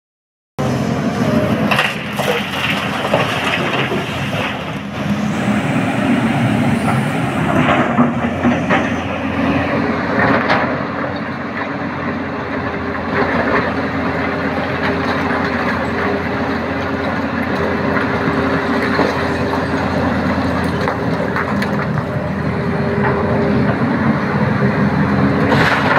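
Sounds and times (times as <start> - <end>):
excavator diesel engine: 0.6 - 25.9
rocks knocking and clattering: 1.7 - 4.9.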